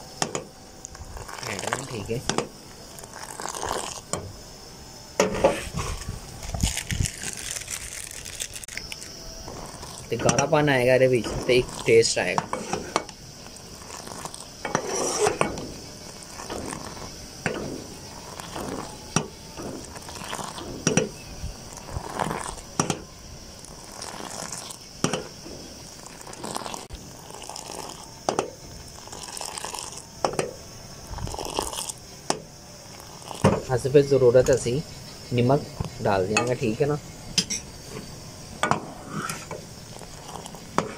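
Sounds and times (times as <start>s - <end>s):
tea splashing as it is poured: 1.2s - 2.2s, 13.5s - 14.5s, 19.8s - 20.7s, 23.7s - 24.8s, 25.9s - 28.0s, 28.9s - 30.0s.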